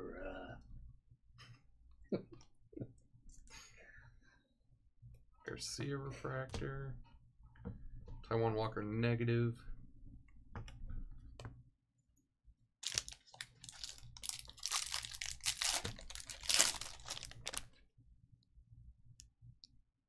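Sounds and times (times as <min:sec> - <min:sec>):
foil wrapper crinkling and tearing: 0:12.8 - 0:17.7.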